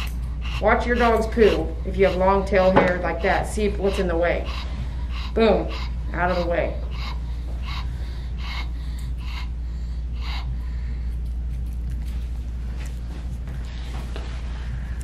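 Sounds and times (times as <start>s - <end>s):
dog panting heavily: 0.0s - 11.4s.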